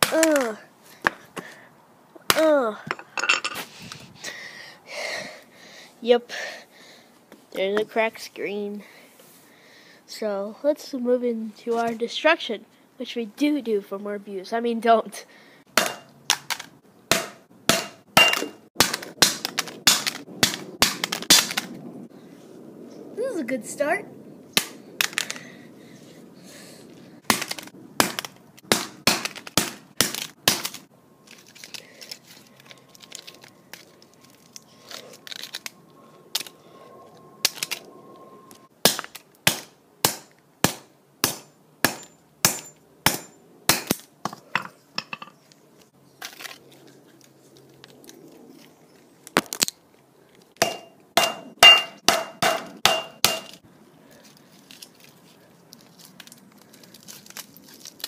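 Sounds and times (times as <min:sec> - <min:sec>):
hammer striking phone on concrete: 0:17.1 - 0:18.6, 0:50.6 - 0:53.6.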